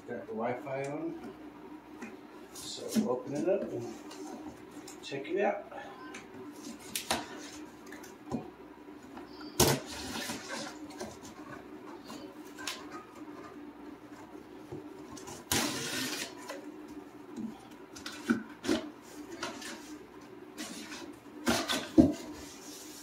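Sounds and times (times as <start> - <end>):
knife ripping packing tape: 15.5 - 16.4.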